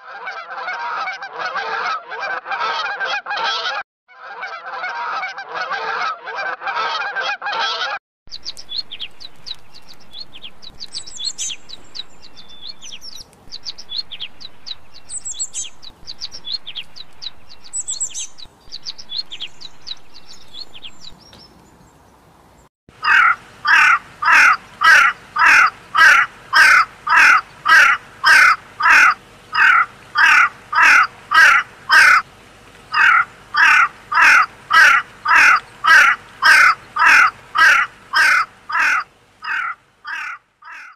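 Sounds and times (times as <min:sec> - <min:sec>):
waterfowl honking: 0:00.0 - 0:08.0, 0:23.0 - 0:40.9
songbird chirping rapidly: 0:08.3 - 0:22.2, 0:23.0 - 0:40.9
crow cawing: 0:23.0 - 0:32.2, 0:32.9 - 0:40.9.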